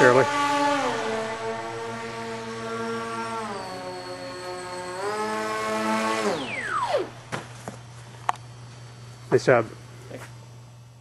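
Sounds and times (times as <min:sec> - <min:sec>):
electric motor and propeller whining: 0:00.0 - 0:11.0.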